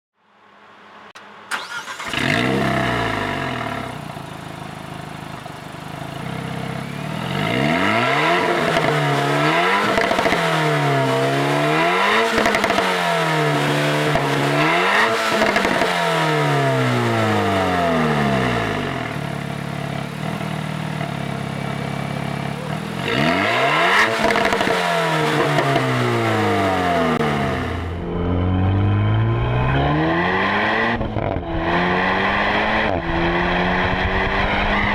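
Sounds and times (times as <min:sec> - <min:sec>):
car driving on road: 0:00.4 - 0:34.9
car engine idling: 0:01.5 - 0:07.2, 0:16.4 - 0:23.4
car engine revving: 0:01.5 - 0:34.9.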